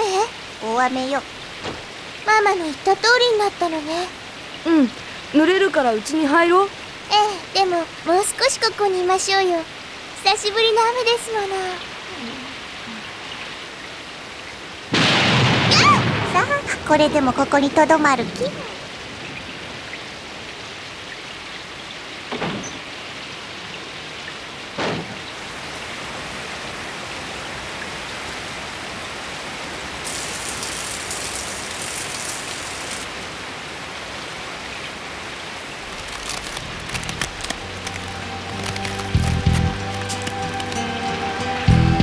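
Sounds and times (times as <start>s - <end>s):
heavy rain pouring: 0.0s - 42.0s
music: 37.4s - 42.0s.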